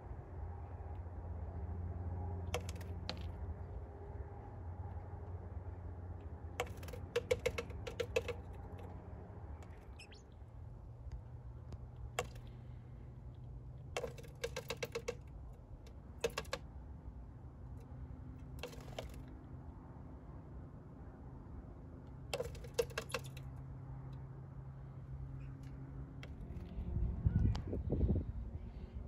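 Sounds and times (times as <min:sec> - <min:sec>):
bird beak tapping on glass: 0:02.5 - 0:03.3, 0:06.6 - 0:08.9, 0:12.2 - 0:12.5, 0:13.9 - 0:16.6, 0:18.6 - 0:19.2, 0:22.3 - 0:23.5.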